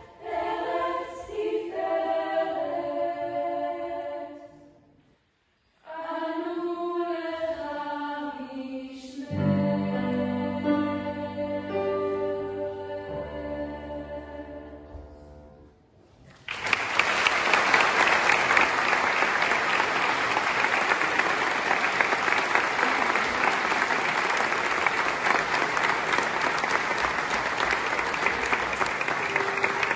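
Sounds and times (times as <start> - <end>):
choir singing: 0.0 - 4.9, 5.8 - 15.2, 25.5 - 29.9
audience applauding: 16.4 - 29.9.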